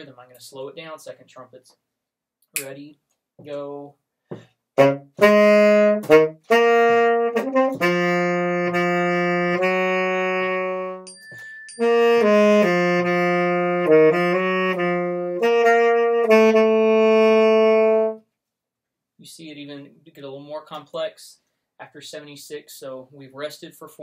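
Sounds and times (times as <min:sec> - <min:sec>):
tenor saxophone melody: 0:04.8 - 0:11.1, 0:11.7 - 0:18.3.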